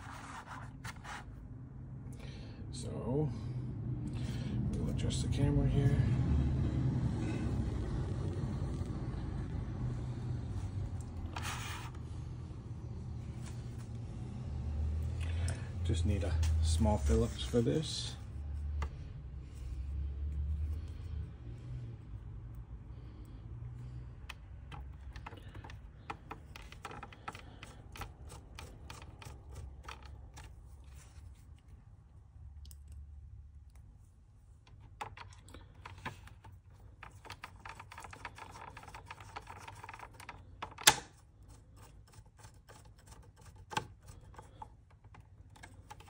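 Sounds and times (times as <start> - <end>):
hands handling plastic case: 24.7 - 31.4.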